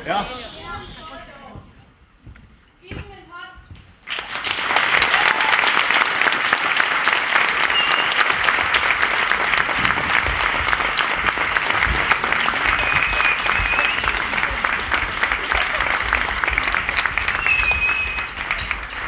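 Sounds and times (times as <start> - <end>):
audience applause: 4.0 - 19.0.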